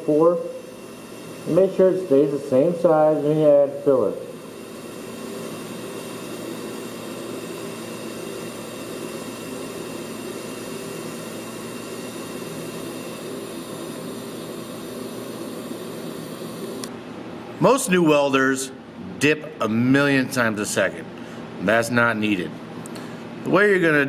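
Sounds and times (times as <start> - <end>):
welding arc hissing: 0.0 - 16.9
faint steady buzz: 0.0 - 17.0.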